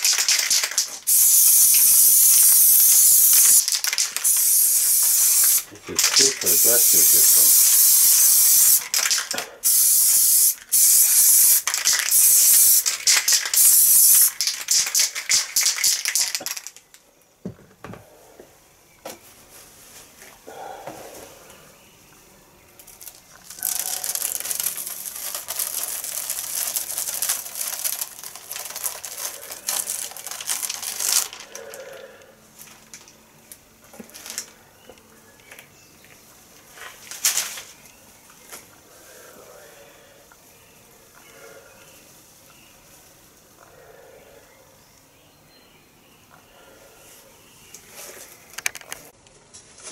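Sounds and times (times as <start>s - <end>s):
spray paint can hissing: 0.0s - 16.8s, 23.5s - 31.4s
paper stencil peeled off rustling: 22.9s - 31.4s.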